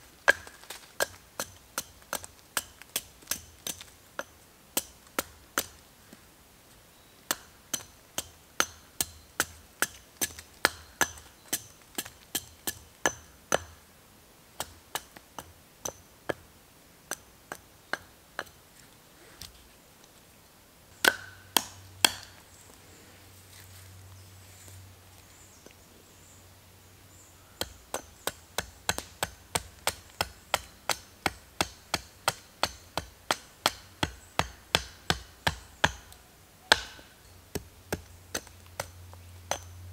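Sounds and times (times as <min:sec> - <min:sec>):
hatchet chopping a log: 0:00.2 - 0:05.8, 0:07.3 - 0:13.8, 0:14.6 - 0:16.4, 0:21.0 - 0:22.4, 0:27.6 - 0:39.7.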